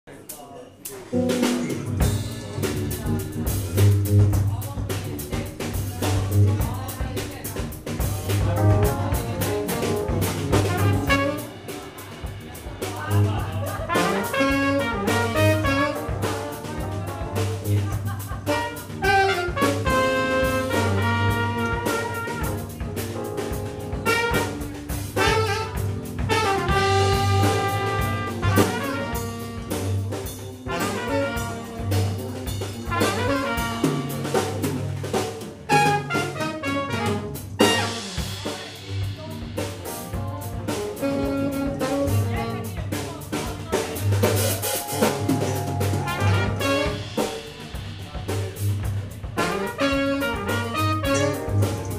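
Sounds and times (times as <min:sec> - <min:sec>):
drum kit: 0:00.1 - 0:51.9
electric bass: 0:01.2 - 0:51.9
trumpet: 0:08.0 - 0:34.8, 0:35.6 - 0:42.8, 0:44.0 - 0:47.5, 0:49.3 - 0:51.9
tenor saxophone: 0:08.3 - 0:12.5, 0:13.1 - 0:22.9, 0:23.5 - 0:34.6, 0:35.7 - 0:38.9, 0:40.7 - 0:42.8, 0:45.0 - 0:47.2, 0:49.3 - 0:51.9
keyboard: 0:08.4 - 0:11.7, 0:13.8 - 0:29.6, 0:44.3 - 0:47.2, 0:49.5 - 0:51.9.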